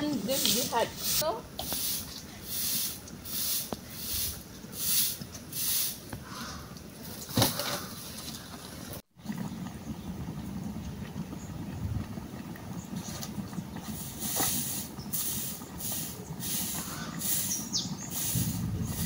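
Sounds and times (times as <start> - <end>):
broom sweeping earth: 0.0 - 8.9, 13.8 - 19.0.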